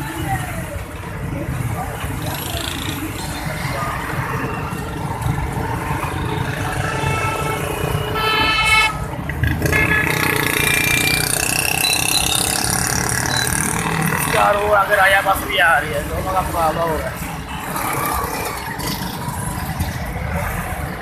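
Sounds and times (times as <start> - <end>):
rumble of engines: 0.0 - 21.0
vehicle horns honking: 6.2 - 11.0.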